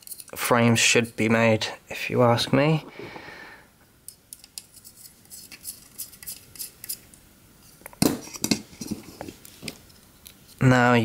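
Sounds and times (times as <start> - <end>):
small metal parts clinking: 0.0 - 0.4.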